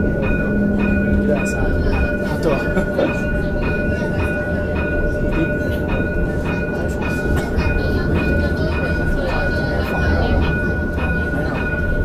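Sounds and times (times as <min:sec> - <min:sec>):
tram low rumble: 0:00.0 - 0:12.0.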